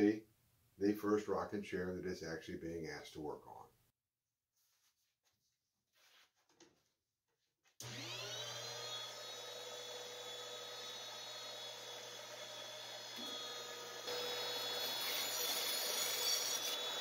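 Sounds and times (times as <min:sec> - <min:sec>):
band saw motor humming: 0:07.8 - 0:17.0.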